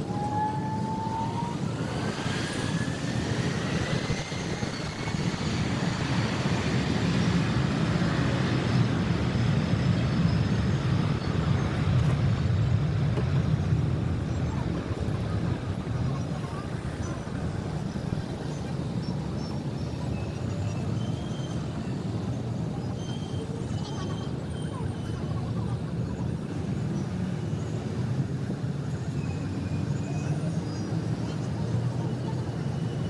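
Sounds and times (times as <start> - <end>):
jet engines spooling up: 0.0 - 29.8
heavy jet noise: 0.0 - 33.0.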